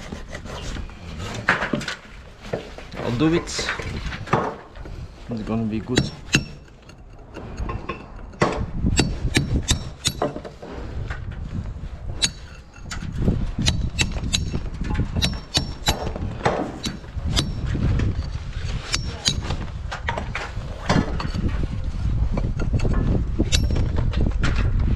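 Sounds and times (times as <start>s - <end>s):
metal tool tapping bricks: 5.5s - 10.6s, 12.2s - 17.8s, 18.9s - 20.2s, 22.3s - 24.2s.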